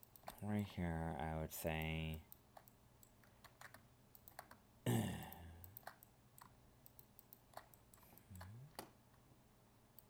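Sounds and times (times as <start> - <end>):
computer mouse and keyboard clicks: 0.0 - 0.6, 1.7 - 4.6, 5.6 - 9.0.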